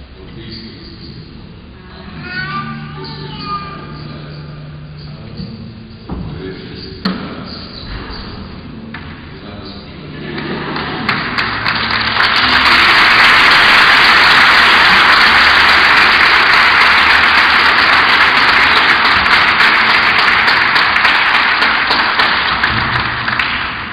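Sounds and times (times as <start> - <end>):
congregation applauding: 10.3 - 23.9.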